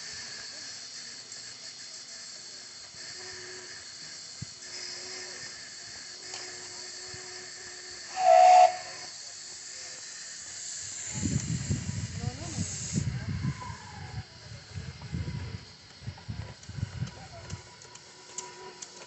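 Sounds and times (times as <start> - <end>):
steam hissing: 0.0 - 19.0
steam whistle blast: 6.3 - 9.2.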